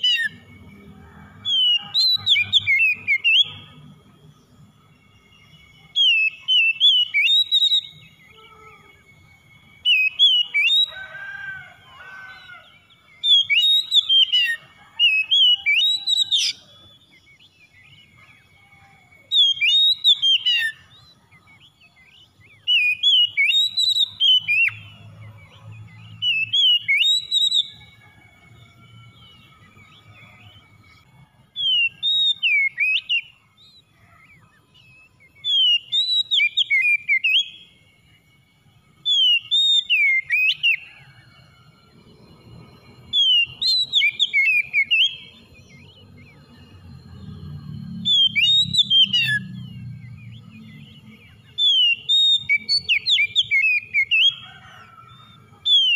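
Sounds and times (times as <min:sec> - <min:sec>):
bird singing whistled notes: 0:00.0 - 0:55.9.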